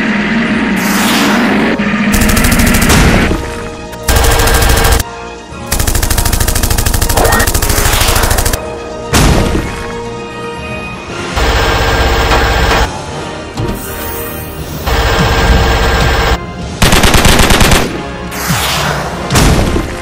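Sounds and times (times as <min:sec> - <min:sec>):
machine-gun fire bursts: 0:02.1 - 0:03.3, 0:04.1 - 0:05.0, 0:05.7 - 0:08.6, 0:11.4 - 0:12.9, 0:14.9 - 0:18.0.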